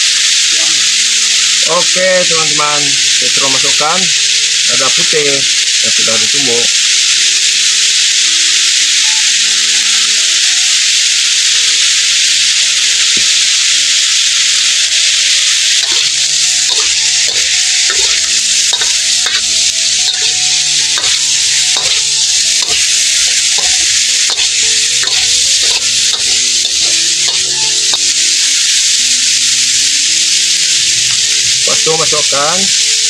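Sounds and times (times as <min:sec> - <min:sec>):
meat sizzling in a wok: 0:00.0 - 0:33.0
metal spatula scraping a pan: 0:14.3 - 0:28.6.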